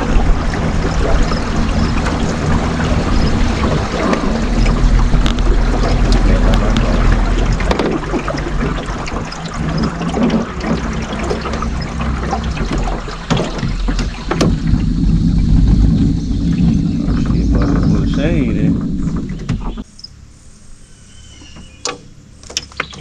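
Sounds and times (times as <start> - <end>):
wind noise: 0.0 - 19.8
electric boat motor humming: 0.0 - 19.9
water wash: 0.0 - 19.9
sharp knocks: 1.8 - 19.8.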